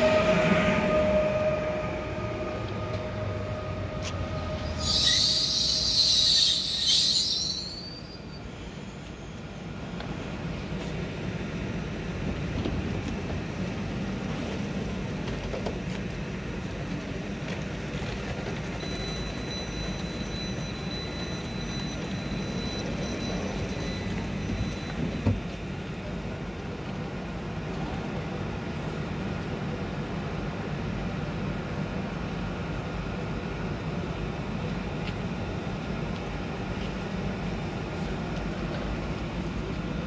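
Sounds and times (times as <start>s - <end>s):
steady high tone: 0.0s - 9.0s
train equipment humming: 0.0s - 40.0s.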